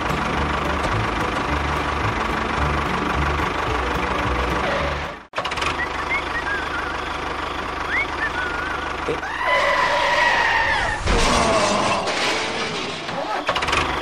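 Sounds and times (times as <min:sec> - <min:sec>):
tractor engine running: 0:00.0 - 0:14.0
short whistling chirps: 0:05.7 - 0:07.1, 0:07.9 - 0:08.9.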